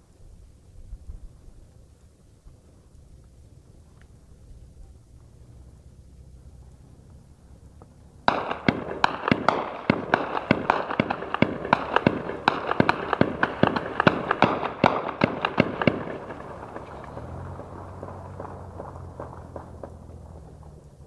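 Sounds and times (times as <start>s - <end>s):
heavy gunfire: 8.3s - 20.1s.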